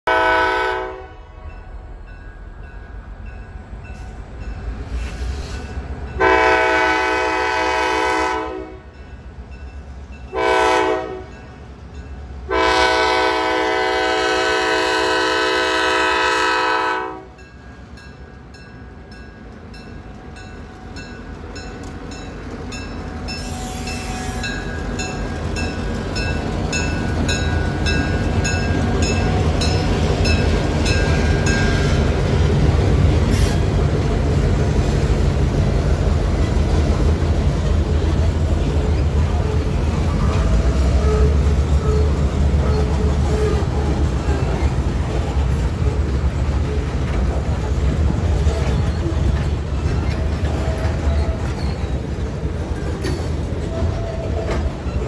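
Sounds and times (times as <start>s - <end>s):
locomotive horn blasts: 0.1s - 1.6s, 6.2s - 9.0s, 10.3s - 11.4s, 12.5s - 17.4s, 40.7s - 43.9s
locomotive engine and wheels rumbling: 0.1s - 55.0s
crossing bell ringing: 1.3s - 4.9s, 8.8s - 13.1s, 17.3s - 32.2s.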